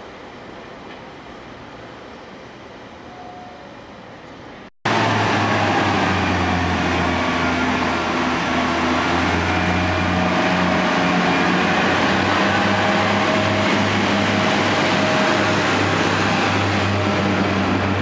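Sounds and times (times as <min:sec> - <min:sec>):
diesel train engine drone: 0:00.0 - 0:18.0
wheel and rail noise: 0:04.0 - 0:18.0.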